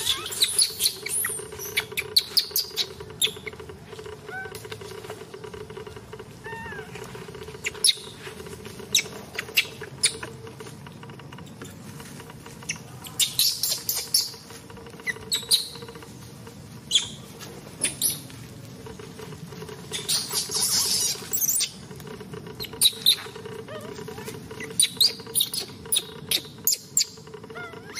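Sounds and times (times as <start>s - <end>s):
baby monkey squeaking: 0.0s - 3.6s, 4.3s - 4.6s, 6.4s - 8.2s, 8.8s - 10.3s, 12.6s - 16.0s, 16.9s - 17.2s, 17.8s - 18.3s, 19.8s - 21.8s, 22.6s - 27.9s.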